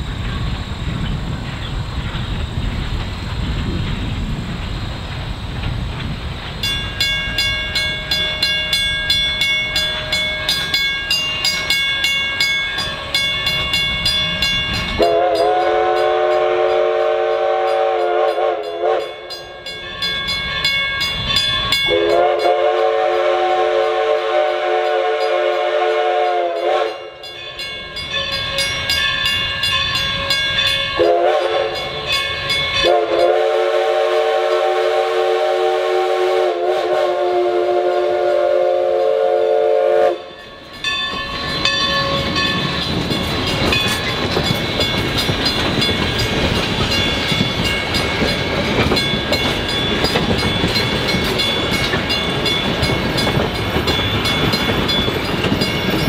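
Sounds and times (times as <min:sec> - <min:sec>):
steam locomotive chuffing: 0:00.0 - 0:56.0
steam whistle blasts: 0:15.0 - 0:19.4, 0:21.8 - 0:27.3, 0:29.5 - 0:40.6.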